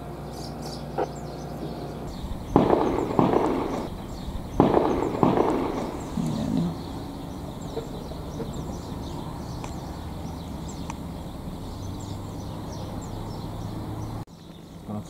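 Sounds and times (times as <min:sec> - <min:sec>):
shotgun shots with echo: 0:02.2 - 0:06.6.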